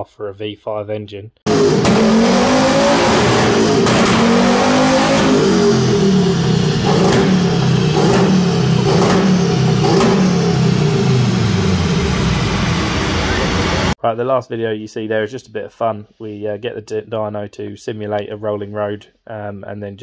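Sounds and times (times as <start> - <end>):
engine revving on dyno: 1.5 - 14.0
sharp crack at gear change: 6.8 - 10.3.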